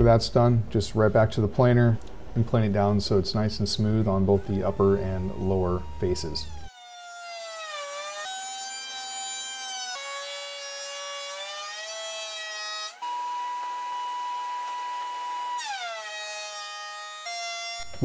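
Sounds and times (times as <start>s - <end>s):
thickness planer whining: 3.8s - 18.0s.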